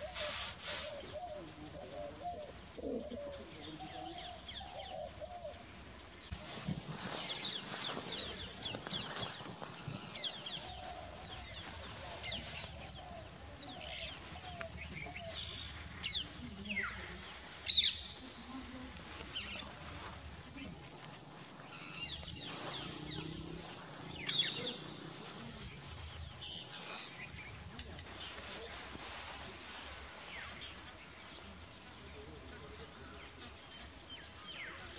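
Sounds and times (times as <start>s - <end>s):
high insect-like hiss: 0.0s - 34.9s.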